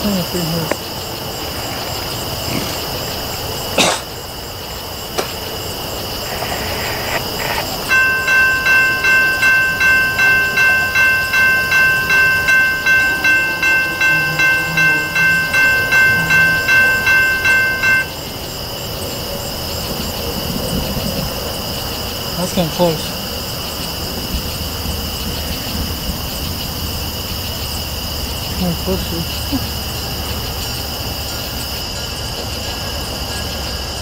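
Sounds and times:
grade-crossing warning bell ringing: 7.4s - 19.1s.

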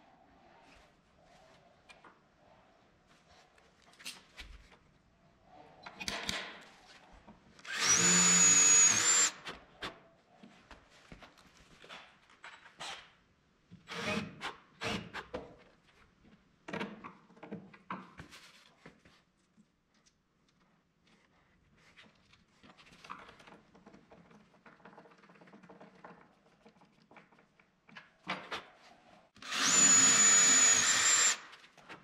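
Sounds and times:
tools knocking and clicking: 5.8s - 6.7s
cordless drill whining: 7.6s - 9.5s, 29.4s - 31.5s.

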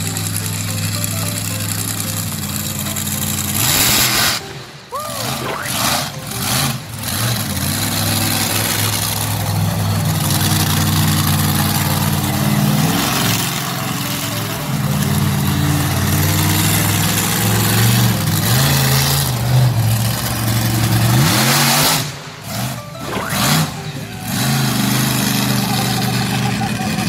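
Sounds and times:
monster truck engine revving: 0.0s - 27.0s.

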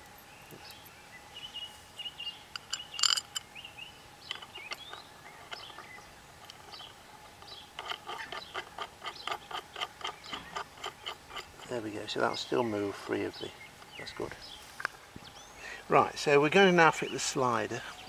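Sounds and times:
birds chirping faintly: 0.0s - 18.0s
metal arm clicking and tapping: 2.6s - 3.5s, 4.2s - 11.7s.

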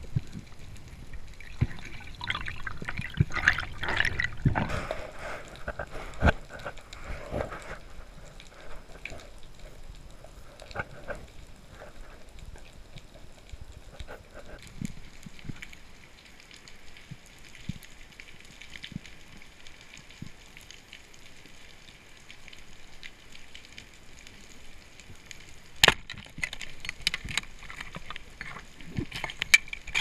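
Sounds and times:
underwater reef crackling clicks: 25.3s - 30.0s.

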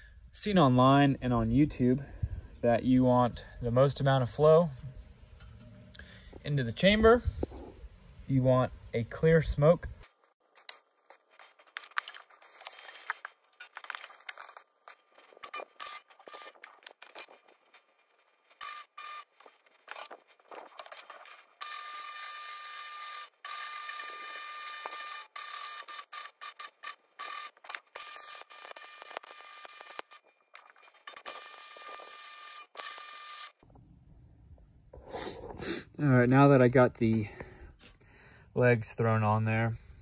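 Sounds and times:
metal clinks and knocks: 10.0s - 21.7s.

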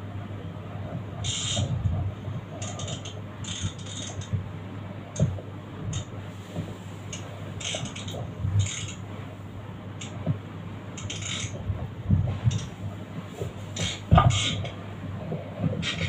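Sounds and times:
steady low hum: 0.0s - 16.0s
fishing reel clicking and whirring: 2.6s - 4.3s, 7.6s - 9.0s, 11.0s - 11.6s.

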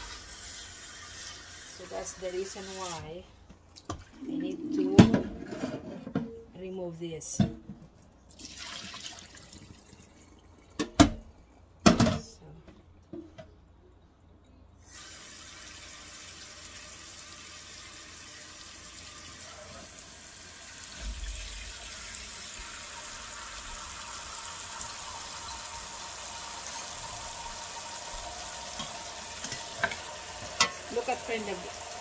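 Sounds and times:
tap water pouring into pot: 8.3s - 11.2s, 14.9s - 32.0s.

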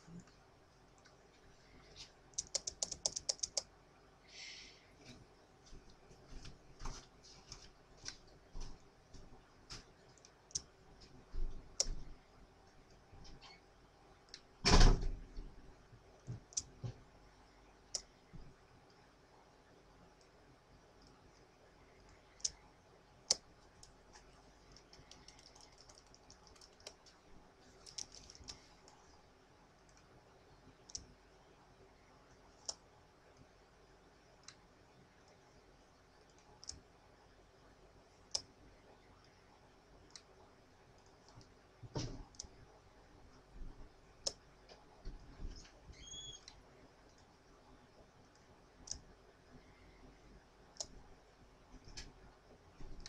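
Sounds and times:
computer mouse clicks: 2.3s - 3.7s, 10.2s - 10.7s, 22.1s - 22.6s, 24.6s - 27.2s, 27.8s - 29.0s, 30.8s - 31.1s, 36.3s - 36.8s, 41.0s - 42.5s, 48.3s - 49.0s, 50.7s - 51.0s.

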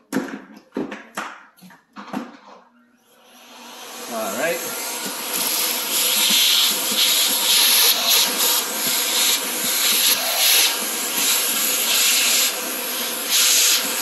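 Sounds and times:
vacuum cleaner suction hiss: 3.3s - 14.0s.

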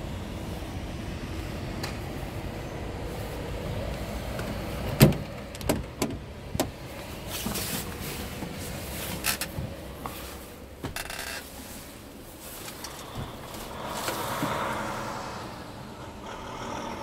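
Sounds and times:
low steady rumble: 0.0s - 17.0s
truck door clunks and knocks: 4.9s - 6.8s.

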